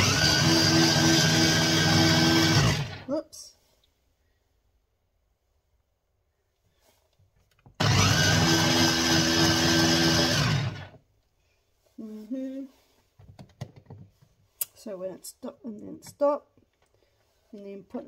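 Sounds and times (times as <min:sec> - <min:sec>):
mini chopper motor whirring: 0:01.8 - 0:03.0, 0:07.8 - 0:10.8.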